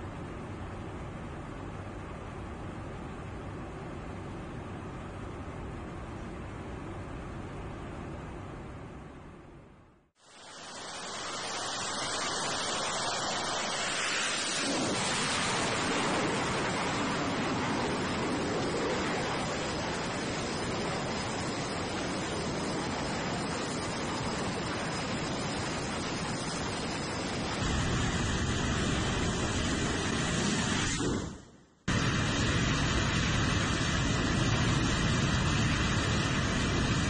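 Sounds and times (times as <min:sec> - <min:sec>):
jet engines running: 0:10.2 - 0:37.0.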